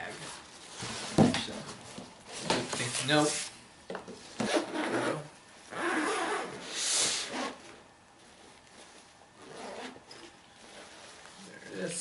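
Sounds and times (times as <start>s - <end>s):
zipper being drawn: 4.4s - 7.7s, 9.4s - 11.2s
fabric rubbing: 4.5s - 11.5s.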